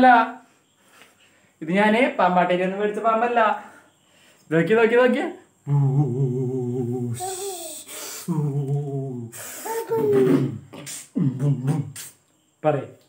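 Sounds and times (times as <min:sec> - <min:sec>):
man humming a tune: 0:05.6 - 0:12.1
long hissing sounds: 0:05.6 - 0:12.7.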